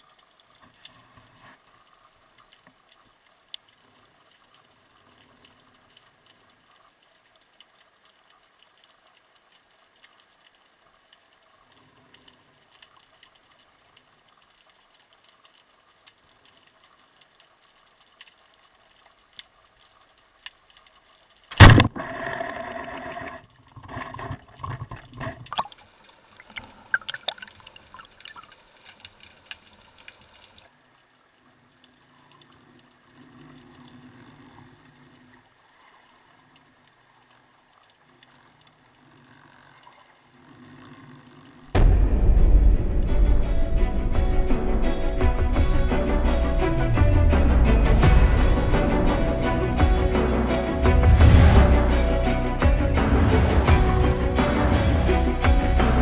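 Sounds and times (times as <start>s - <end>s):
faint underwater ticks: 0.0s - 43.2s
speargun firing crack: 21.5s - 22.0s.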